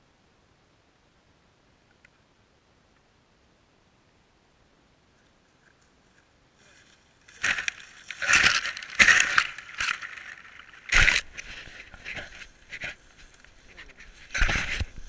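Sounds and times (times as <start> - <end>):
dry sticks crunching and rustling: 5.6 - 15.0.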